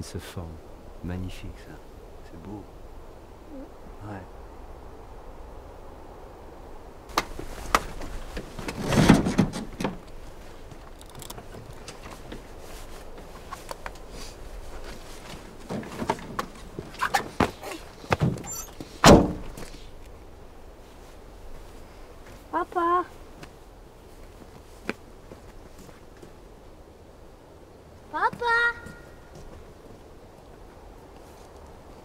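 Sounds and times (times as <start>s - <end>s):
clicks and knocks in vehicle cab: 7.1s - 10.1s
heavy vehicle door thunk: 8.4s - 10.0s, 18.2s - 19.6s.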